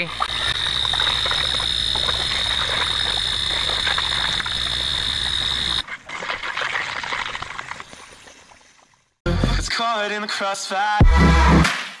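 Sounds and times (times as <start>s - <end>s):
liquid bubbling and gurgling: 0.0s - 9.2s.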